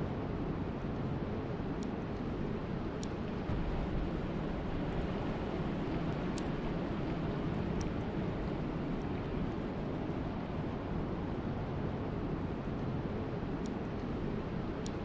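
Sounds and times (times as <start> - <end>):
rain: 0.0 - 15.0
wind: 0.0 - 15.0
faint ticks: 1.8 - 2.3, 2.9 - 3.2, 5.8 - 6.6, 7.7 - 8.1, 13.6 - 14.2, 14.8 - 15.0.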